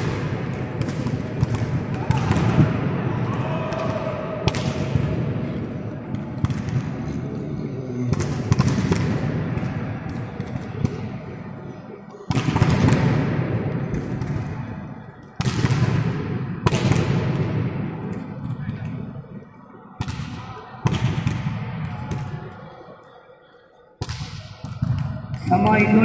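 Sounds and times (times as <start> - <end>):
volleyballs slapping and bouncing: 0.0 - 5.3, 6.0 - 7.0, 8.1 - 11.2, 12.3 - 18.9
background din in hall: 0.0 - 26.0.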